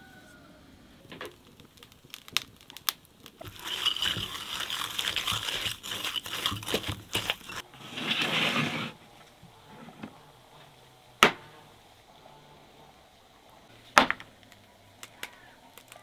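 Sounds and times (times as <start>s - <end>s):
spoon scraping sugar in glass bowl: 3.4s - 7.6s.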